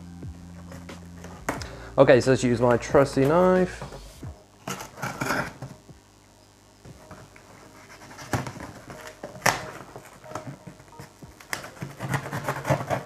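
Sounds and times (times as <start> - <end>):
cardboard rustling and scraping: 2.6 - 5.8, 7.0 - 13.0
knife cutting packing tape: 11.4 - 13.0.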